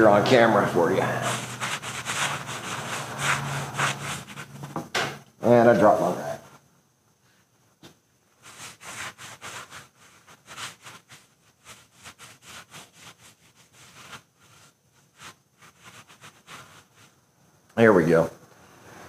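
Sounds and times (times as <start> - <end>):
towel rubbing on wood: 0.0 - 4.7, 8.4 - 17.2.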